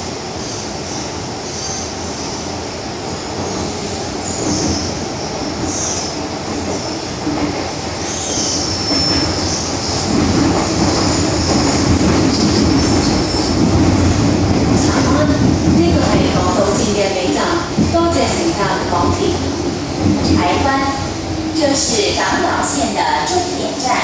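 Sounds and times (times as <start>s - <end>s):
train wheels rumbling on rails: 0.0s - 24.0s
wheel squeals: 8.1s - 10.1s.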